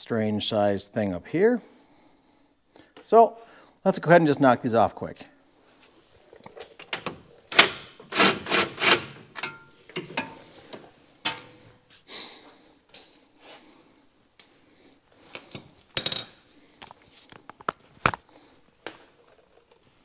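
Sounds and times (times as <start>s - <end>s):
power tool whirring: 7.6s - 9.2s.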